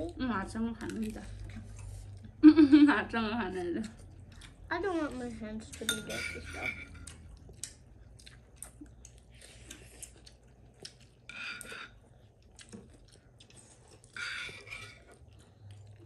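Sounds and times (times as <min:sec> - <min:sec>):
mouth chewing food: 0:00.8 - 0:02.4, 0:03.8 - 0:06.0, 0:06.6 - 0:16.0
faint clicks and smacks: 0:07.0 - 0:11.2.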